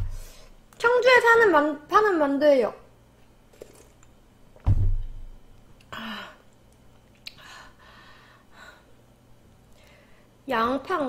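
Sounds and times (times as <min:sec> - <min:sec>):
carton thudding on table: 0:04.6 - 0:05.2.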